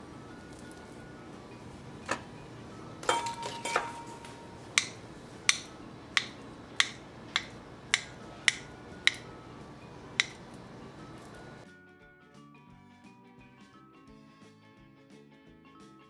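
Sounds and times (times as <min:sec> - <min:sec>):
handling knocks: 0:03.0 - 0:09.4
knife clicking on cutting board: 0:03.7 - 0:09.3, 0:10.2 - 0:10.6.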